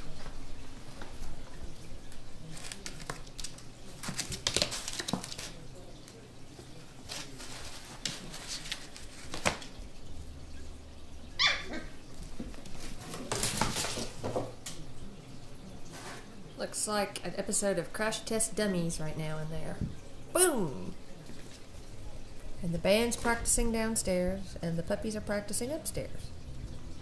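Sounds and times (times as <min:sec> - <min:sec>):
puppies scuffling on tile floor: 0:00.0 - 0:10.0, 0:11.4 - 0:14.8, 0:15.7 - 0:16.4, 0:21.1 - 0:23.4
puppy bark: 0:11.4 - 0:11.9.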